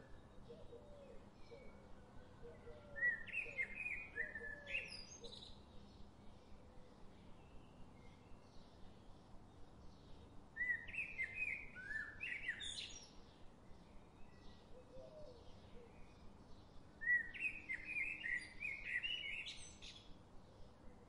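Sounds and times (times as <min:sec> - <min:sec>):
songbird chirping: 0:00.0 - 0:21.0.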